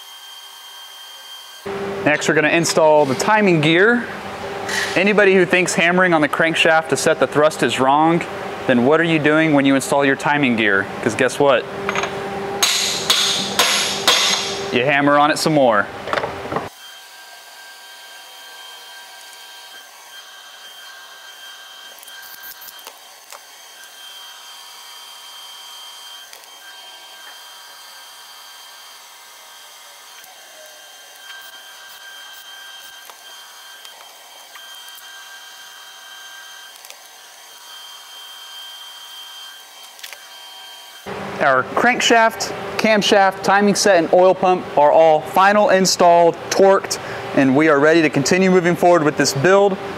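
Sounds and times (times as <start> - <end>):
workshop background hum: 0.0 - 49.9.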